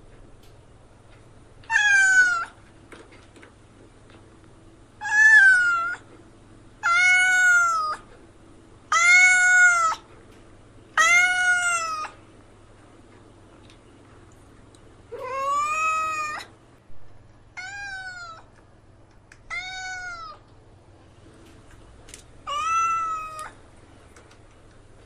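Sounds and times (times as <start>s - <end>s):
kitten meowing: 1.7s - 2.6s, 5.0s - 6.0s, 6.8s - 8.0s, 8.9s - 10.0s, 11.0s - 12.2s, 15.1s - 16.5s, 17.6s - 18.5s, 19.5s - 20.4s, 22.4s - 23.6s.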